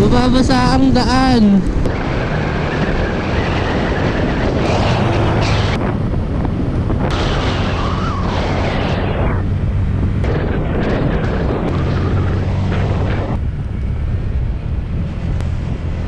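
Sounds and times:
wind buffeting microphone: 0.0s - 16.0s
motorcycle engine running: 9.4s - 16.0s.

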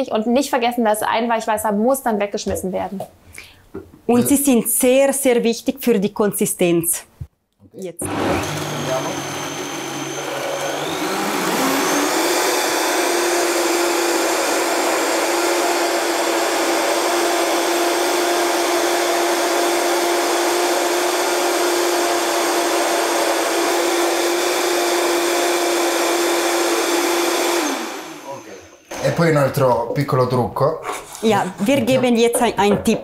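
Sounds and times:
blender motor whining: 8.0s - 29.1s.

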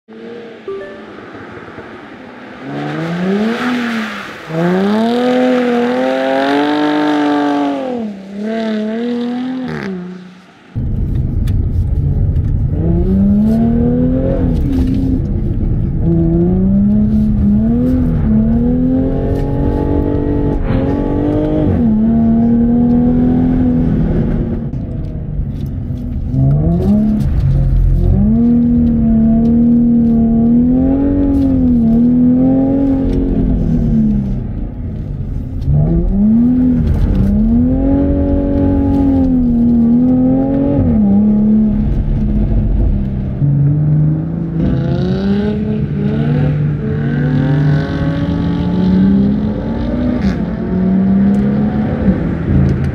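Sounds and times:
car engine revving: 0.1s - 52.9s.

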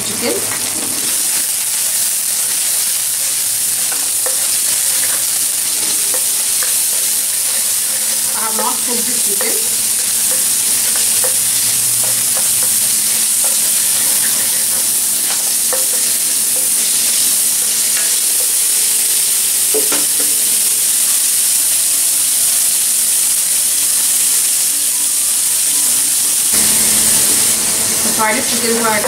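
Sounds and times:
food sizzling in hot oil: 0.0s - 29.0s.

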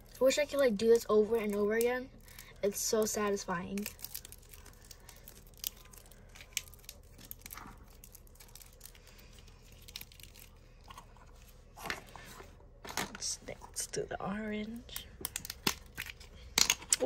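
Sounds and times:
clay being stretched and squeezed: 1.2s - 13.7s.

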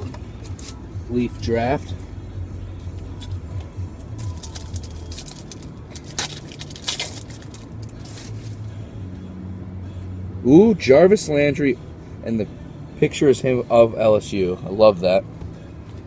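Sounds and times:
low car hum: 0.0s - 16.0s
card pack wrapper crinkling: 4.2s - 8.5s.

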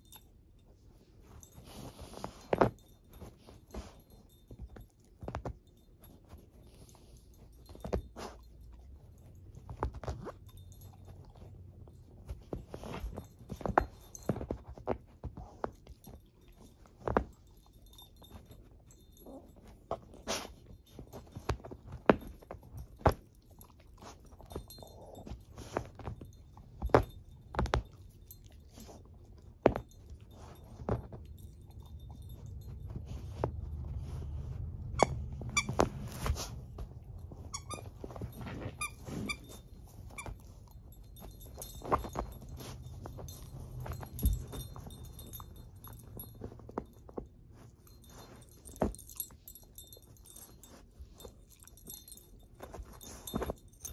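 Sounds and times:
dog chewing and tearing toy: 34.7s - 46.6s
toy squeaker squeaking: 35.0s - 35.8s, 37.5s - 38.0s, 38.8s - 39.5s.

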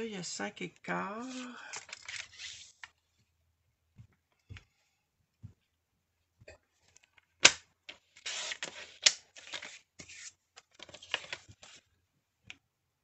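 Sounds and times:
paper sliding and rustling: 1.2s - 2.9s, 8.1s - 11.9s.

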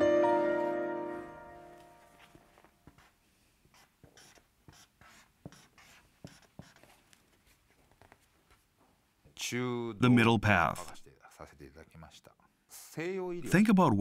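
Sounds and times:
pen scratching on paper card: 2.8s - 7.0s.

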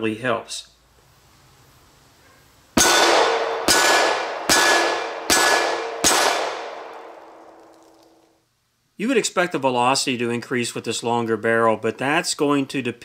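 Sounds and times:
steel plate ringing: 2.8s - 7.2s
bullets clanging on steel target: 2.8s - 8.2s.

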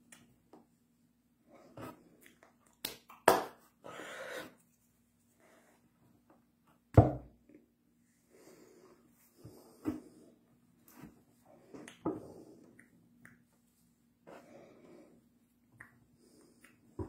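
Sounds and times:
hand slaps and claps: 2.8s - 3.6s.

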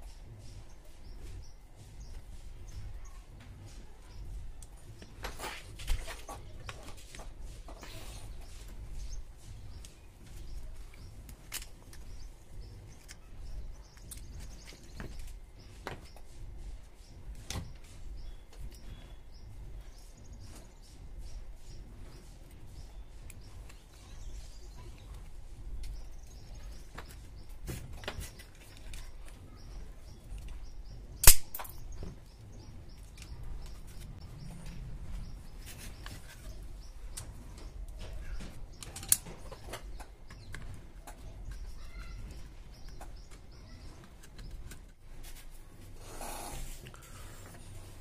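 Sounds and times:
loud sharp click: 31.2s - 31.8s.

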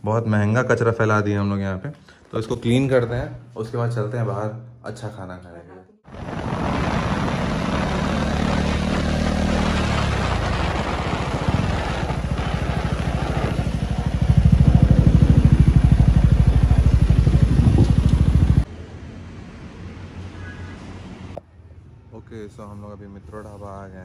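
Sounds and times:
motorcycle engine running: 6.1s - 18.6s
wind rushing: 6.1s - 18.7s.

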